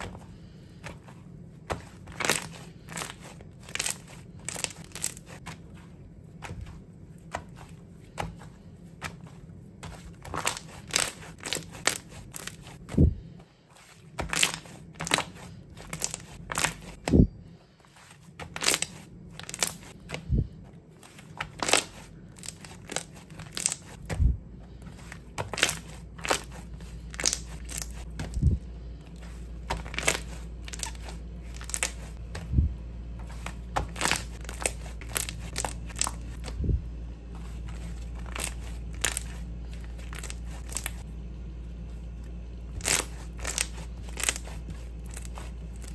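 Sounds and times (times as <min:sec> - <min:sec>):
slime popping and crackling: 0:01.9 - 0:05.4, 0:10.2 - 0:12.7, 0:14.2 - 0:17.0, 0:18.5 - 0:19.9, 0:21.4 - 0:24.0, 0:25.4 - 0:28.5, 0:29.7 - 0:32.2, 0:33.8 - 0:36.6, 0:38.1 - 0:41.0, 0:42.8 - 0:45.9.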